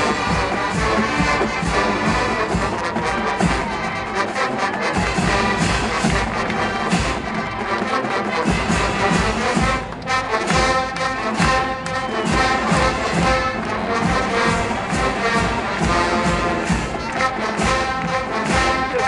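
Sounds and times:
bass drum beat: 0.0 - 19.0
marching band brass: 0.0 - 19.0.

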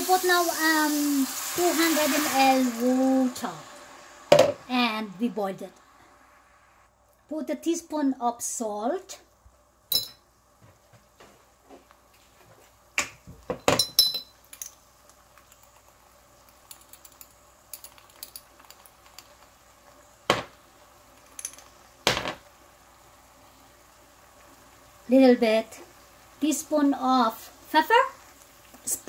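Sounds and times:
sauce bubbling in a pan: 0.0 - 7.2, 14.3 - 29.0.

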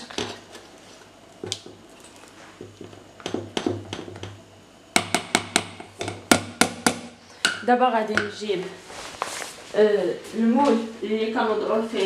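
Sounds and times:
spatula knocking metal bowl: 5.0 - 7.6.

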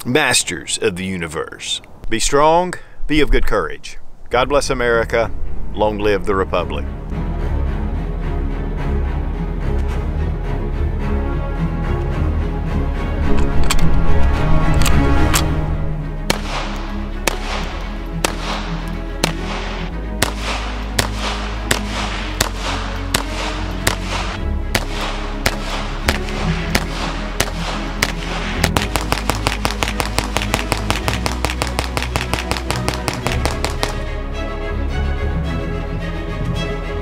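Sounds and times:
background music: 4.9 - 37.0
pistol shots: 16.3 - 34.0.

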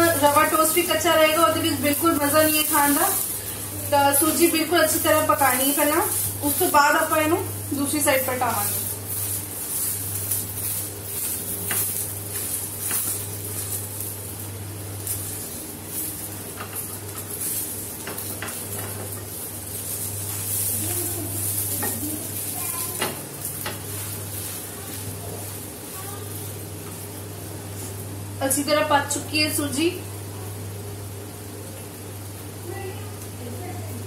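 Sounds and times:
toast sizzling in oil: 0.0 - 34.0
spatula scraping and tapping pan: 8.9 - 13.9, 16.5 - 20.7.

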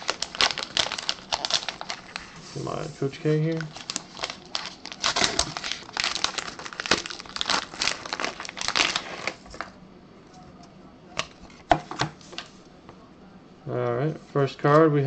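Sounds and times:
wrapper crinkling and tearing: 0.0 - 2.3, 3.2 - 9.7.

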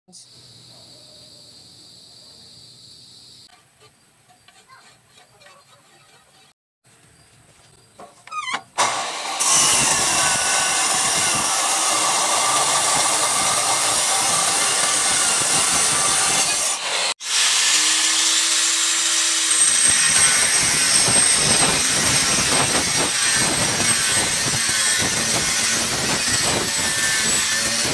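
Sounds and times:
angle grinder grinding steel: 8.3 - 27.9
cut-off saw cutting steel: 8.5 - 27.9.

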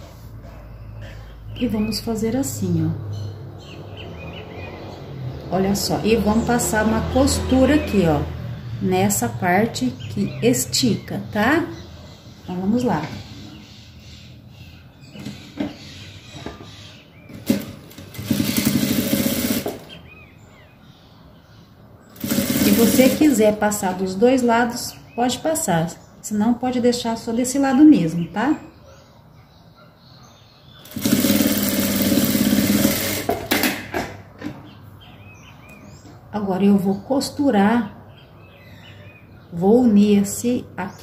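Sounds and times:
industrial sewing machine stitching: 17.3 - 20.0, 22.2 - 23.5, 30.8 - 33.8.

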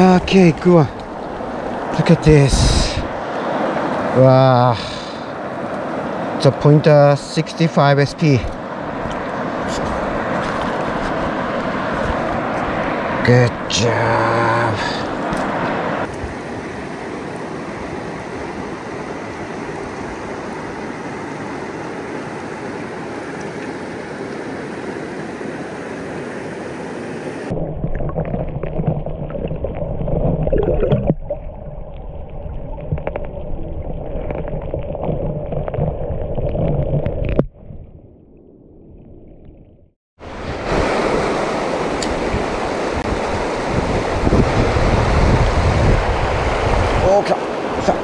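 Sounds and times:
rushing river water: 0.0 - 37.4, 40.2 - 48.0.

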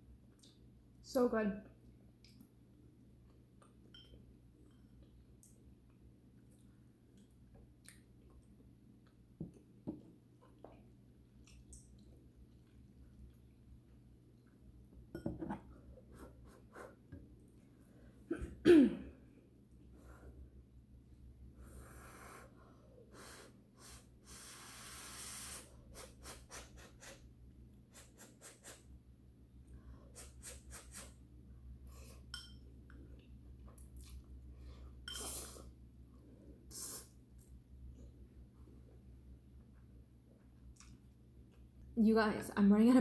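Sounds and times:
faint eating sounds: 1.7 - 14.9, 29.6 - 41.9
woman coughing: 18.3 - 19.2.

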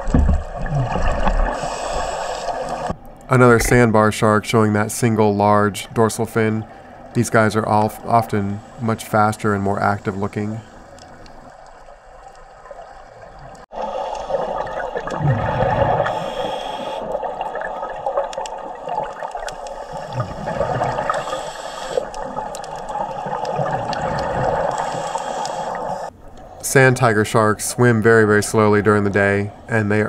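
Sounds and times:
bubbling exhalations: 0.4 - 2.9, 14.2 - 17.9, 19.8 - 22.2, 23.0 - 25.8
regulator hiss: 1.6 - 3.0, 16.1 - 17.1, 19.5 - 22.1, 24.6 - 26.8.

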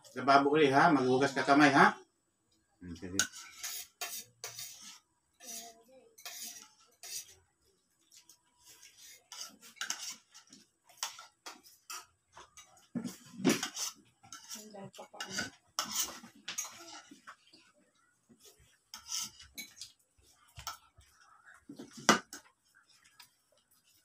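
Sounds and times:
spoons clinking against plates: 3.1 - 7.3, 8.8 - 17.3, 18.9 - 20.0.

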